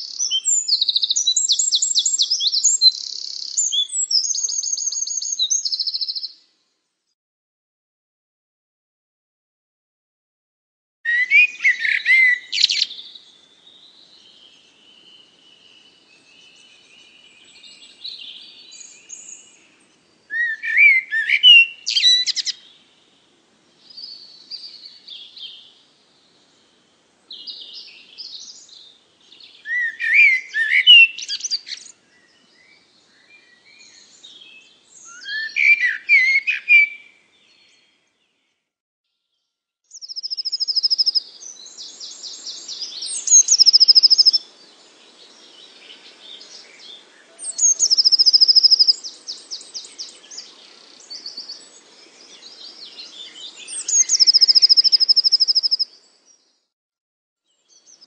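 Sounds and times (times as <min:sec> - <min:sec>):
bird chirping: 0:00.0 - 0:06.5, 0:11.1 - 0:56.7, 0:57.4 - 0:58.0
quiet bird twittering: 0:00.0 - 0:06.5, 0:11.1 - 0:38.7, 0:39.9 - 0:56.7.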